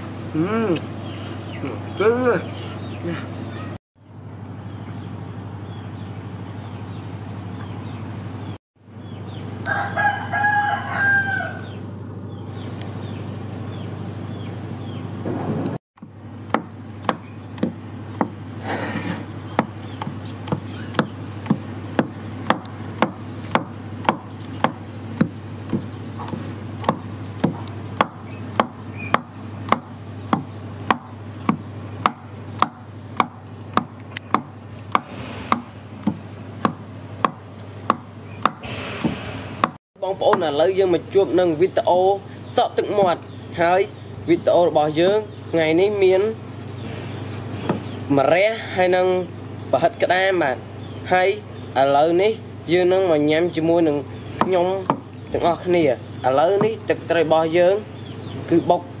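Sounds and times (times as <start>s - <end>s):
rooster crowing: 9.5s - 11.8s
wooden pestle pounding in mortar: 16.0s - 18.4s, 19.5s - 40.5s, 54.4s - 55.1s.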